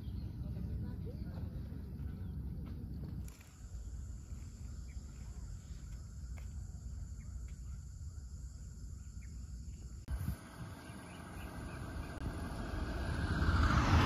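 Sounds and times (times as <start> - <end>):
insect chorus: 0.0 - 14.0
bird chirps: 7.0 - 10.0, 10.6 - 12.2.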